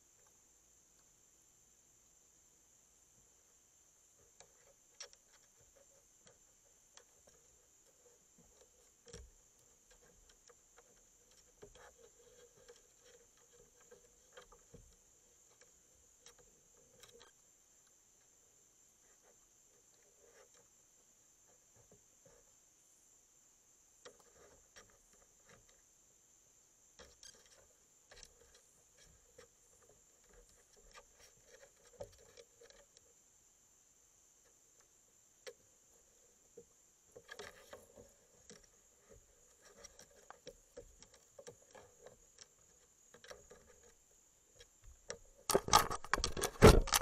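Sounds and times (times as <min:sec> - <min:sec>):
night insect chorus: 0:00.0 - 0:47.0
raccoons rustling and clicking: 0:04.2 - 0:18.4, 0:27.0 - 0:33.1, 0:34.7 - 0:47.0.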